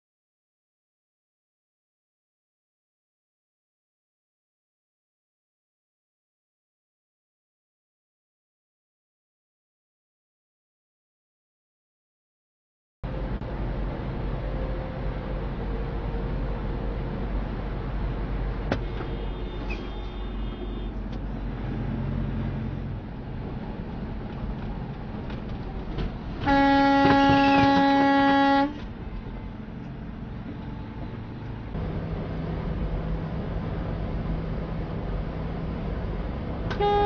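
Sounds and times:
truck road noise: 0:13.0 - 0:37.0
truck air horn: 0:18.8 - 0:21.0, 0:26.4 - 0:28.8, 0:36.7 - 0:37.0.

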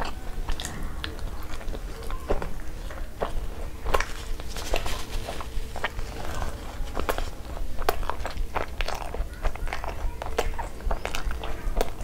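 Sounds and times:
wet chewing: 0:00.0 - 0:12.0
mouth clicks and smacks: 0:07.0 - 0:12.0.

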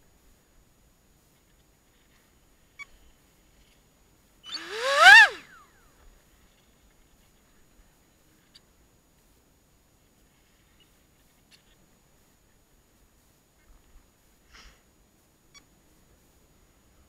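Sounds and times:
electric motor whine: 0:04.5 - 0:05.4.

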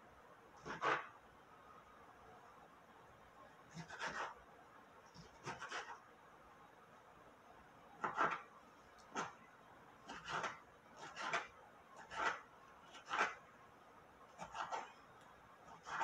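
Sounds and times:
knife slicing tomato: 0:00.6 - 0:01.2, 0:03.7 - 0:04.4, 0:05.1 - 0:06.1, 0:08.0 - 0:09.4, 0:10.0 - 0:13.5, 0:14.3 - 0:15.0, 0:15.6 - 0:16.0.

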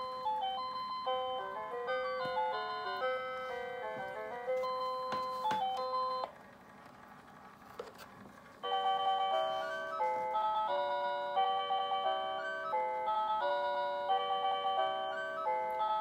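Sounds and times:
chiming electronic tune: 0:00.0 - 0:06.3.

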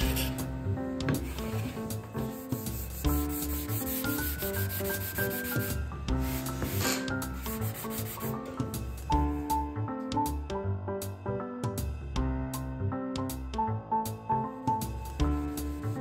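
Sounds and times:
background music of held notes: 0:00.0 - 0:16.0
sandpaper scraping on wood: 0:01.3 - 0:08.4.

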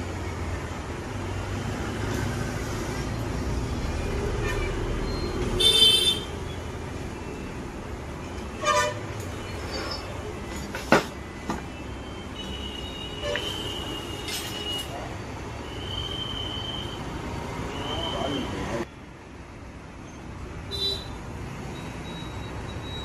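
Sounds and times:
road traffic rumbling: 0:00.0 - 0:23.0
vehicle horn toot: 0:05.6 - 0:06.3.

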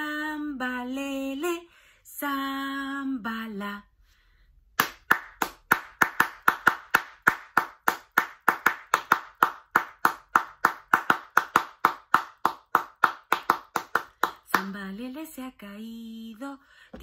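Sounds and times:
rhythmic hand clapping: 0:04.8 - 0:14.9.

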